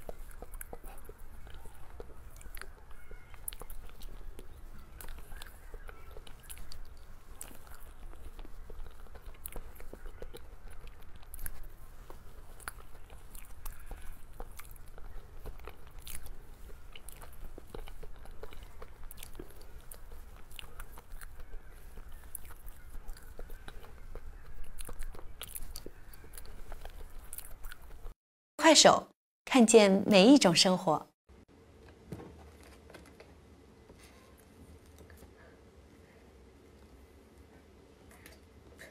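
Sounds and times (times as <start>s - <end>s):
biting and chewing cake: 0.0s - 28.2s
mouth clicks and crunches: 0.0s - 28.2s.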